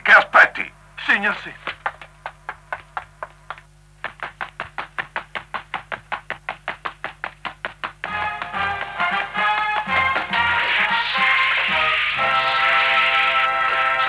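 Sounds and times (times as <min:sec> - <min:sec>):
cartoon quick footsteps: 0:01.4 - 0:12.2
music: 0:08.1 - 0:14.0.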